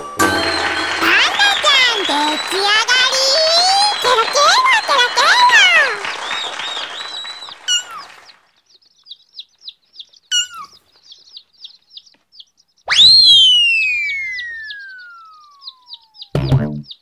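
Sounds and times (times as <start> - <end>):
cartoon whistle swooping: 0.2 - 8.1, 12.9 - 16.6
small birds twittering: 0.5 - 17.0
short stepped falling blip: 16.3 - 16.9.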